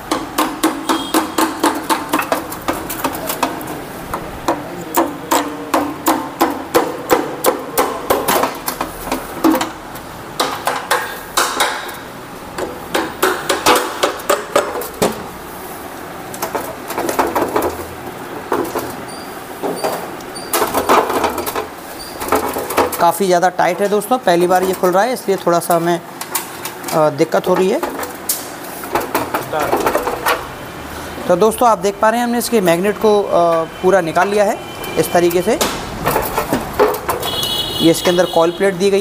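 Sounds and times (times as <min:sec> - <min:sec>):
hammer knocking on engine cover: 0:00.0 - 0:03.6, 0:04.5 - 0:08.6.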